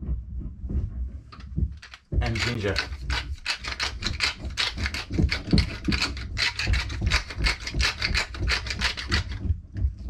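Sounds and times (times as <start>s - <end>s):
ginger being grated: 1.8s - 9.5s.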